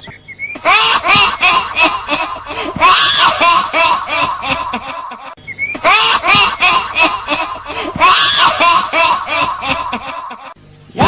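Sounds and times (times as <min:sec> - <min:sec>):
woman cackling shrilly: 0:00.6 - 0:10.6.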